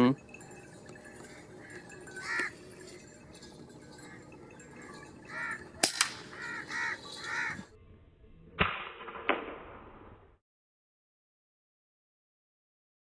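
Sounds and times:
crows cawing: 1.1 - 3.0, 3.8 - 7.7
air rifle crack: 5.8 - 6.3.

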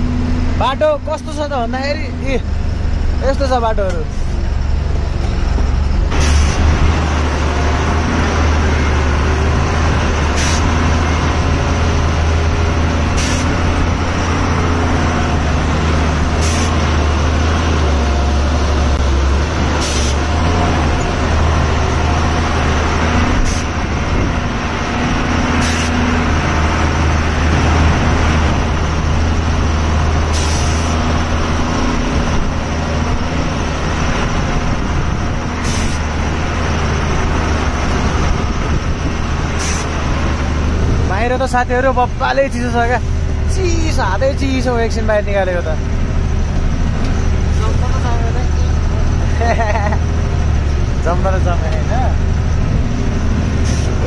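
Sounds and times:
diesel truck engine droning: 0.0 - 54.0
sharp hisses: 30.3 - 30.9.

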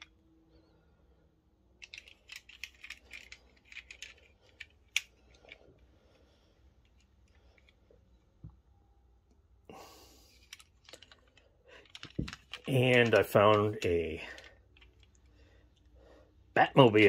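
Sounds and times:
toy car clicks and taps: 1.8 - 5.1, 10.4 - 13.8.

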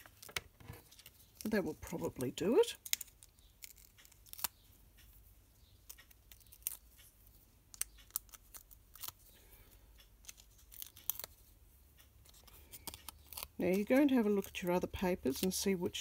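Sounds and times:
paper crackling: 12.2 - 16.0.

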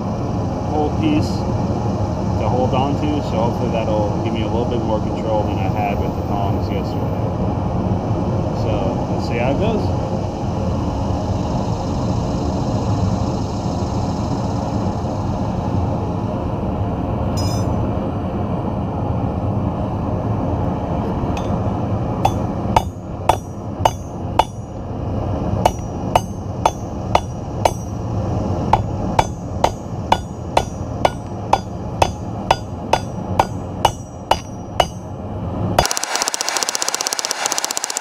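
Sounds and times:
hammer striking steel on anvil: 17.4 - 17.8, 21.4 - 21.6, 22.2 - 24.7, 25.7 - 28.0, 28.7 - 35.1
forge burner rushing: 21.3 - 38.0.

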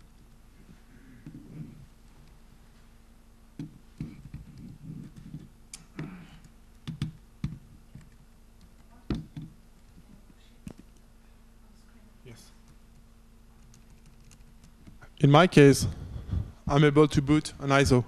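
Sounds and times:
laptop keyboard typing: 6.8 - 8.9, 13.6 - 14.9.

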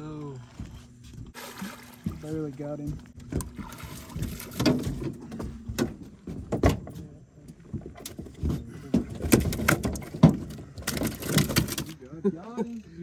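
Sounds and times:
fishing gear knocking and rattling: 2.9 - 7.0, 7.7 - 12.0.

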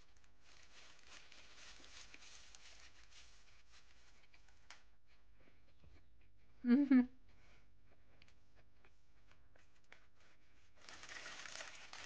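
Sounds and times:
paper wrapper crinkling: 0.0 - 4.0, 10.8 - 12.0.

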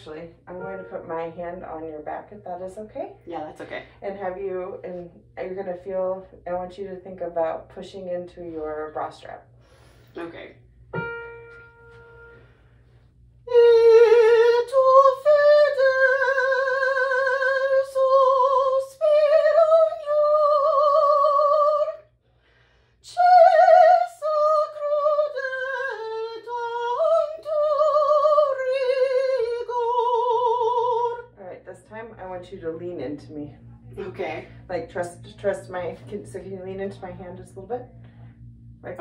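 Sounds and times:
woman singing vocal exercise: 13.5 - 22.0, 23.0 - 31.4.

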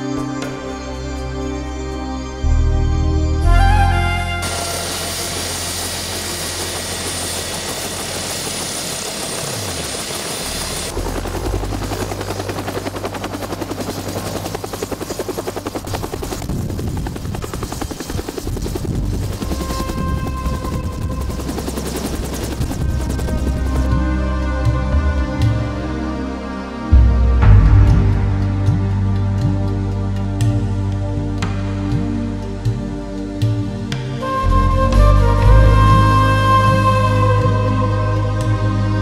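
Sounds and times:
helicopter turbine whine: 0.0 - 39.0
helicopter rotor beating: 4.4 - 25.6.

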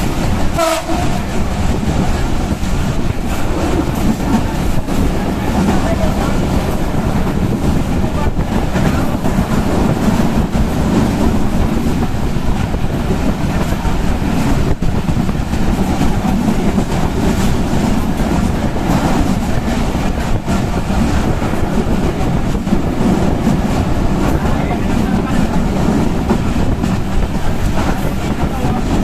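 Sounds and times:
rail clicks: 0.0 - 29.0
train wheels rumbling on rails: 0.0 - 29.0
wind noise: 0.0 - 29.0.

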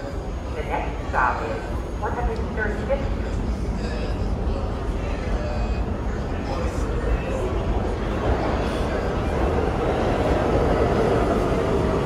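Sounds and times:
subway train rumbling: 0.0 - 12.0.

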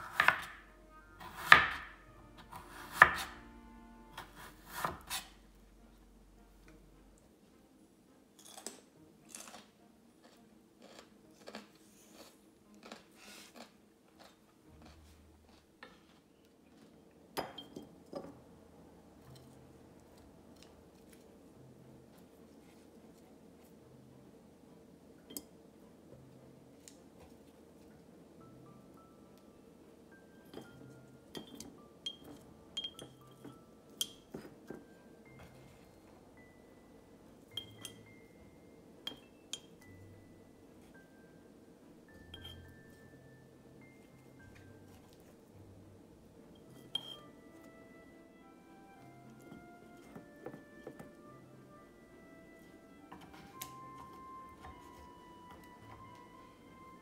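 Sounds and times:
soft background music: 0.0 - 57.0
chopsticks clinking against glass jar: 31.4 - 34.3, 42.3 - 42.7, 46.6 - 47.3
chopsticks clinking on glass jar: 42.3 - 42.6, 46.6 - 47.3.

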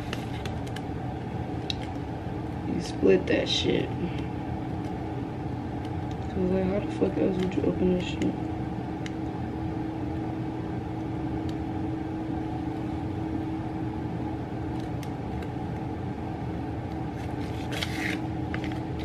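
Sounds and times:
steady mechanical hum: 0.0 - 19.0
plastic package rustling: 17.2 - 19.0.

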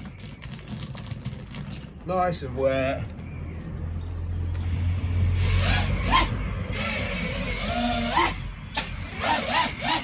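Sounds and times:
drone motors whining: 4.6 - 10.0.

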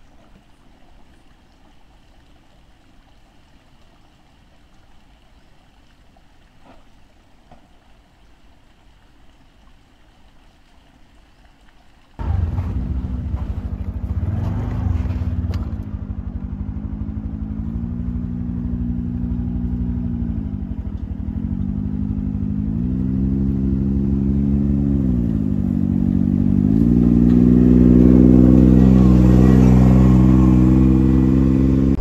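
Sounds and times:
scooter engine running: 12.2 - 32.0.

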